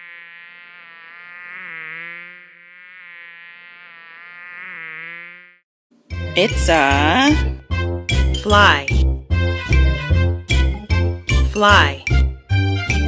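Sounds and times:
fly buzzing: 0.0s - 7.6s.

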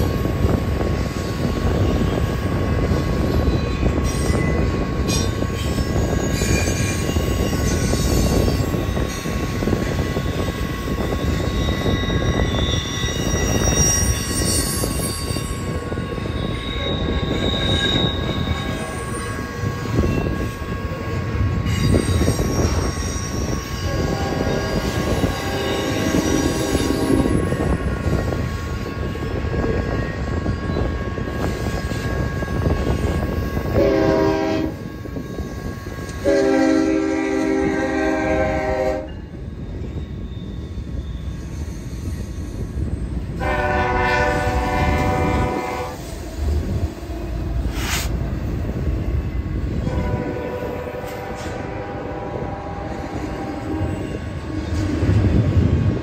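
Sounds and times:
train wheels rumbling on rails: 0.0s - 56.0s
locomotive air horn: 23.8s - 27.3s, 33.7s - 34.9s, 36.1s - 39.1s, 43.4s - 46.0s, 49.8s - 53.9s.

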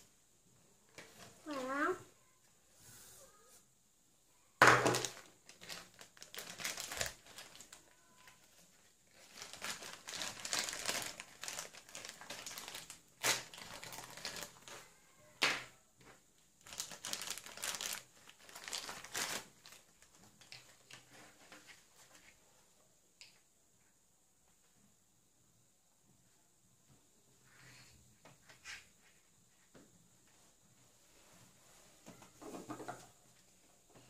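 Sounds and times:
plastic wrapper crinkling: 4.8s - 14.9s, 16.6s - 22.3s.

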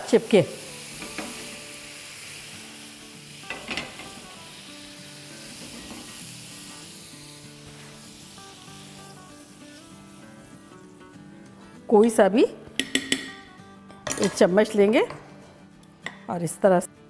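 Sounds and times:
water sizzling on hot pan: 0.0s - 11.4s.

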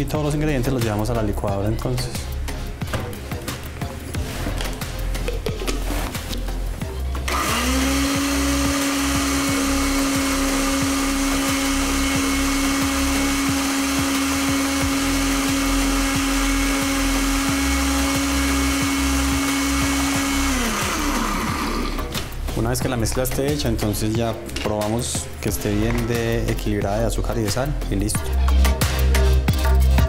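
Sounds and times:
blender running: 7.3s - 22.2s.

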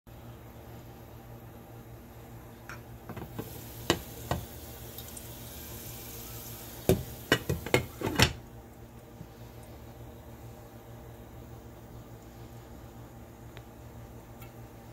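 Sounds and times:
oil and popcorn sizzling: 3.0s - 12.8s.

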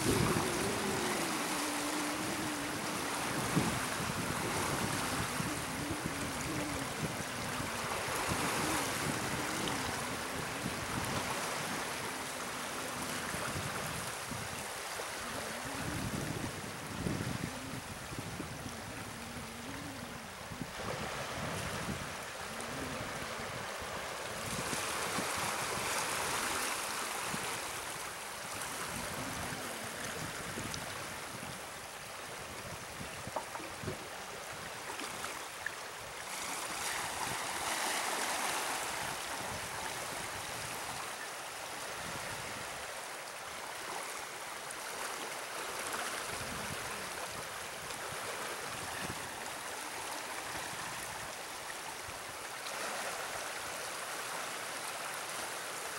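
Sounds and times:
water churning below gates: 0.0s - 13.2s.

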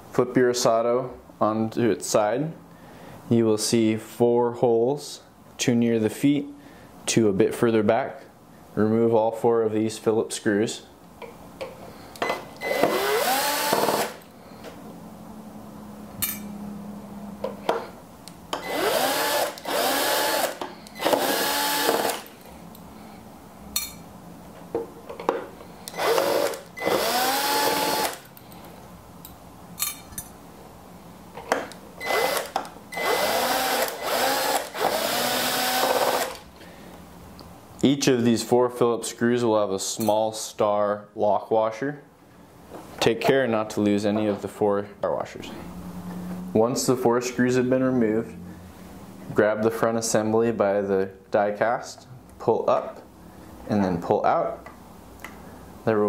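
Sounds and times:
cordless drill motor whining: 12.6s - 14.2s, 18.6s - 22.3s, 25.9s - 28.3s, 32.0s - 36.4s.

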